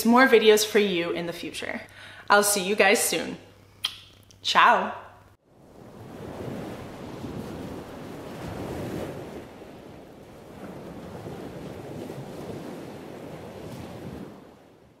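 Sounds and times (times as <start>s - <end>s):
ocean waves washing in: 5.4s - 15.0s.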